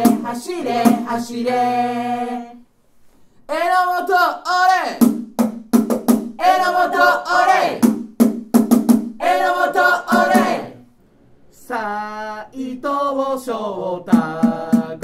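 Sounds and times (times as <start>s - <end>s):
beating drum: 0.0s - 1.3s, 5.0s - 7.1s, 7.8s - 10.7s, 14.1s - 15.0s
football supporters chanting: 0.0s - 2.4s, 6.4s - 7.8s, 9.2s - 10.8s.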